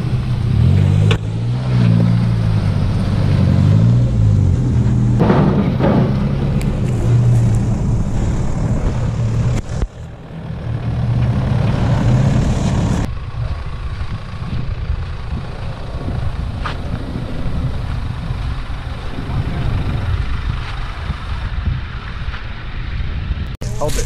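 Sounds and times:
vehicle engines running slowly: 0.0 - 24.0.

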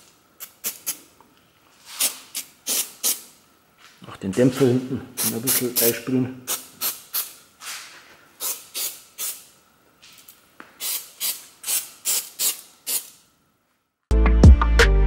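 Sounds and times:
aerosol spray squirts: 10.8 - 13.2.

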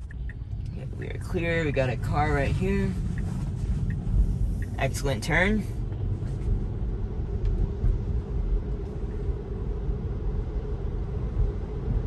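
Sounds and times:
tyre and road noise in car cabin: 0.0 - 12.0.

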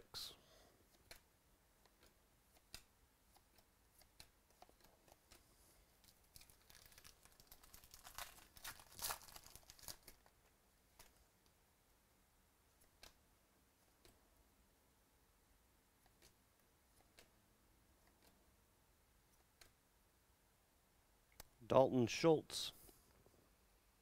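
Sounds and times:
wrapper tearing and crinkling: 6.0 - 10.3.

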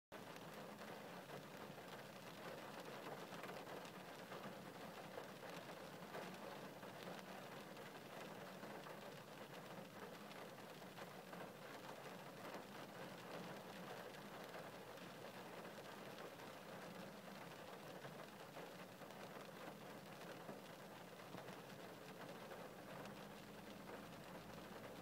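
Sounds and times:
rain falling: 0.2 - 25.0.

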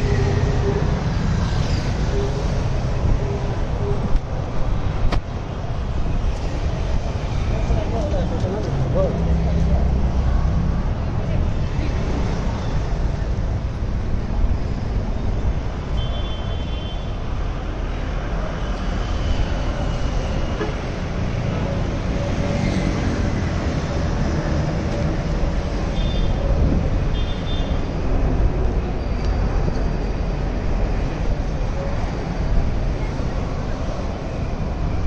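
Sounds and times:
motorcycles and cars passing: 17.5 - 35.0.

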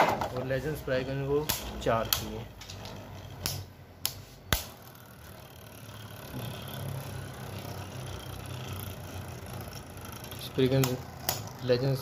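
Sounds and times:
spinning tops whirring: 4.6 - 12.0.

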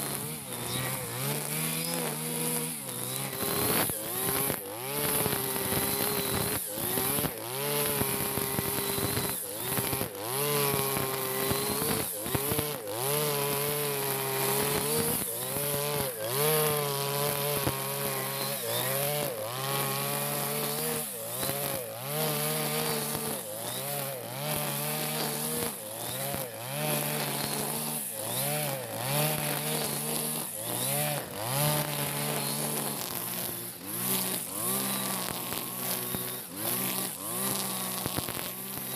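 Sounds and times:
brush cutter engine revving: 0.0 - 38.9.

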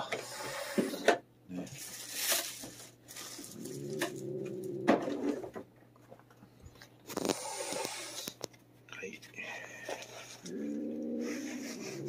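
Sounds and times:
cat growling: 3.4 - 5.4, 10.4 - 12.0
cat hissing: 7.2 - 8.4, 10.5 - 12.0.

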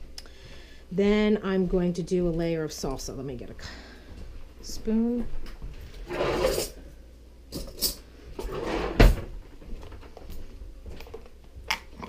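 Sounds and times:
drawer shutting with thud: 8.6 - 9.3.

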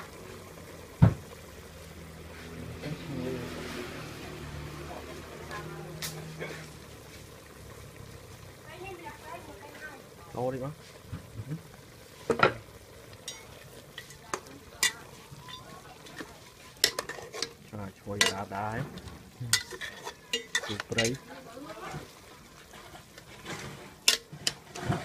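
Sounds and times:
cooking food hissing: 0.0 - 25.0
spoon clinking and scraping pot: 13.2 - 18.6, 19.5 - 21.2, 22.6 - 25.0.

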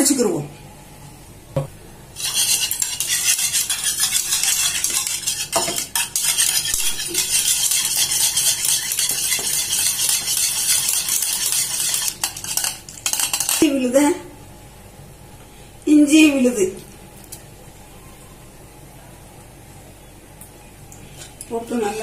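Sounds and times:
wire whisk beating in bowl: 2.2 - 13.7.

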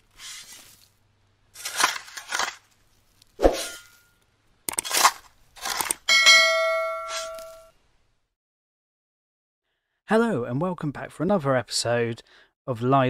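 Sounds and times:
short whooshes: 3.4 - 3.8
notification bell ding: 6.1 - 7.7.

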